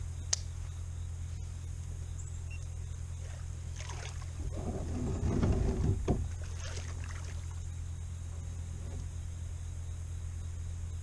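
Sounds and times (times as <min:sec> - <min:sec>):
steady low hum: 0:00.0 - 0:11.0
kayak hull rubbing: 0:03.8 - 0:07.4.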